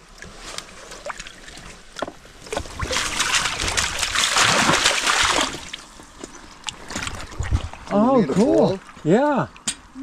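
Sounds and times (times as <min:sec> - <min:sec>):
fish splashing in water: 0:02.4 - 0:06.0.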